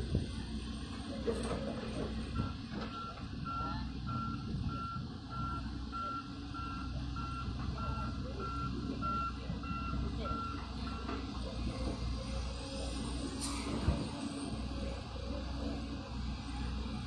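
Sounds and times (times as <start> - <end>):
heavy machinery engines running: 0.0 - 17.0.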